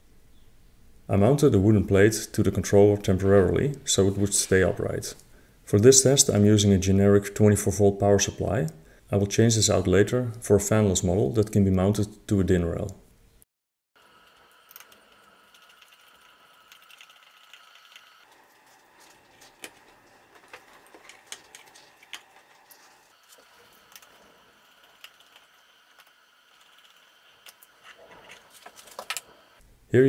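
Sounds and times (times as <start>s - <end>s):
faint steady whine: 14.0s - 30.0s.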